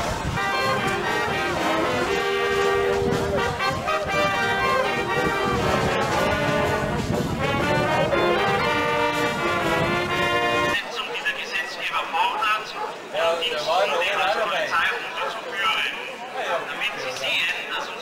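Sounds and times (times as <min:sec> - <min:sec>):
brass band playing: 0:00.0 - 0:11.0.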